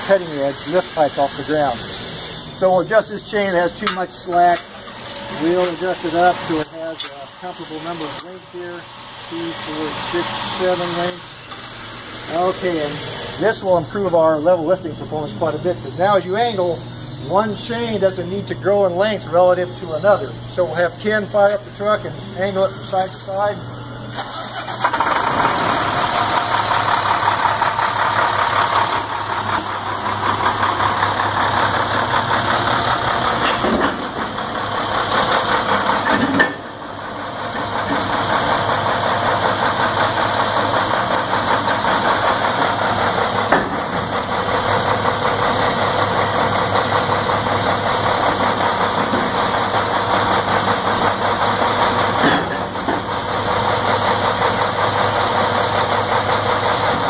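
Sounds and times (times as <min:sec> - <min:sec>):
truck engine running: 0:23.2 - 0:57.0.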